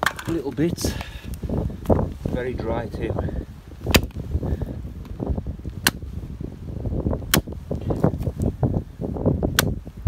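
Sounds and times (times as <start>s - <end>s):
hatchet chopping wood: 3.9s - 4.2s, 5.8s - 6.0s, 7.3s - 7.6s, 9.5s - 9.8s.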